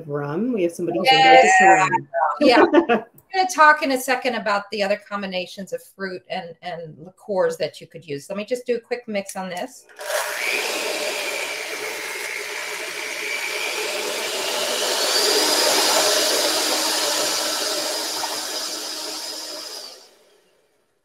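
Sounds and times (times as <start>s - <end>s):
electric hand mixer running: 9.8s - 20.4s.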